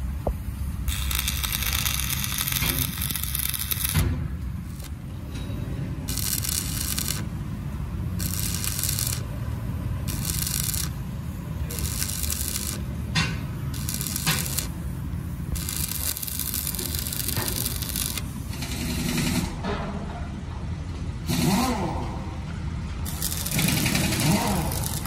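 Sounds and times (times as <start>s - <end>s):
steady low hum: 0.0s - 18.7s.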